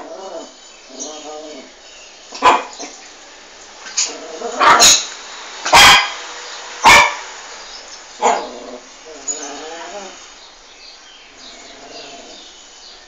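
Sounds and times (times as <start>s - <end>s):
small dog barking: 2.4s - 2.9s, 4.6s - 5.1s, 5.7s - 6.2s, 6.8s - 7.3s.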